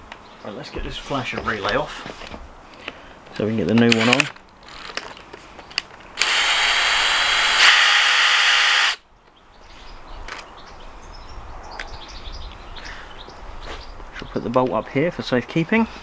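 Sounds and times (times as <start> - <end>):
power drill motor running: 6.2 - 9.0.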